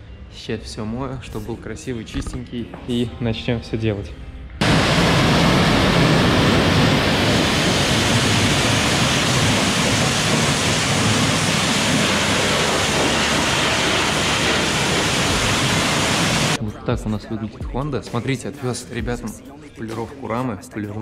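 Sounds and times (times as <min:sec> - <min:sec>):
high-pressure water jet spraying: 0:06.8 - 0:16.6.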